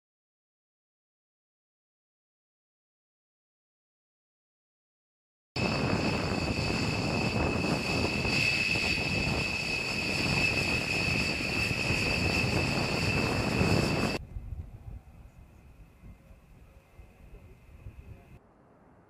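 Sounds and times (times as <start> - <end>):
jet engines whining and rumbling: 5.6 - 19.0.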